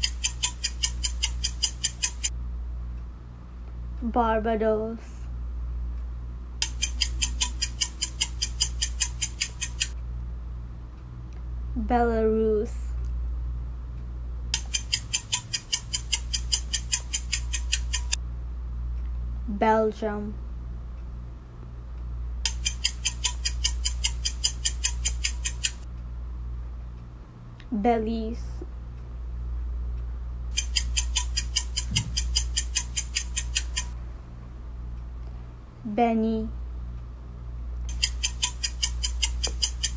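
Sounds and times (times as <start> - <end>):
rapid clock ticking: 0.0 - 2.3, 6.6 - 10.0, 14.6 - 18.2, 22.5 - 25.9, 30.5 - 34.0, 37.9 - 39.9
steady low hum: 0.0 - 39.9.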